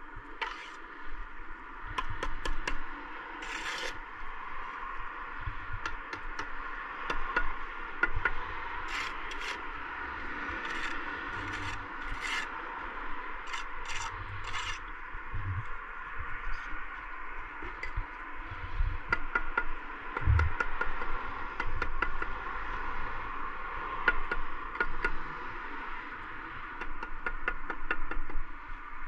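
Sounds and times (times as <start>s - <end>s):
trowel scraping mortar on bricks: 0.4s - 0.8s, 3.4s - 4.0s, 8.9s - 9.6s, 10.6s - 12.5s, 13.4s - 14.9s.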